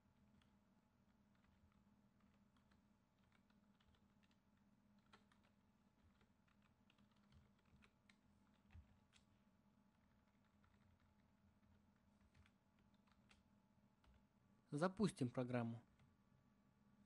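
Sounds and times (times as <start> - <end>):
low steady hum: 0.0 - 17.0
computer keyboard typing: 0.3 - 9.3, 9.9 - 14.2.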